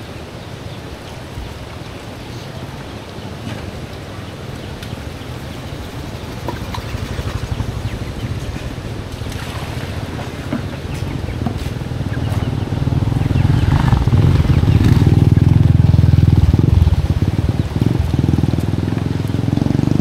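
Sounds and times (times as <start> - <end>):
steady low rumble: 1.0 - 20.0.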